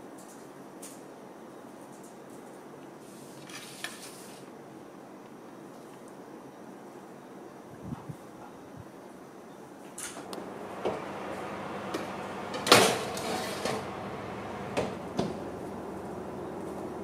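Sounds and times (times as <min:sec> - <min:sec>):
steady background hiss: 0:00.0 - 0:17.0
oven door shutting: 0:10.1 - 0:17.0
metal tray clattering on oven rack: 0:12.5 - 0:13.9.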